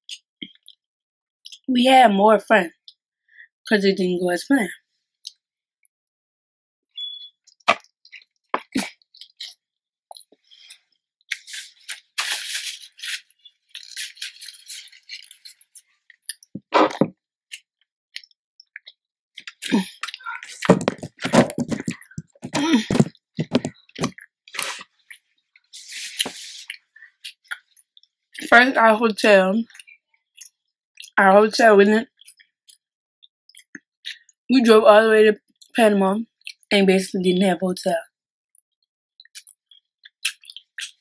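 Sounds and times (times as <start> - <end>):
chewing and lip-smacking: 7.5 - 16.5, 17.5 - 20.7, 21.8 - 28.5, 29.7 - 31.2, 33.5 - 34.2, 38.6 - 41.0.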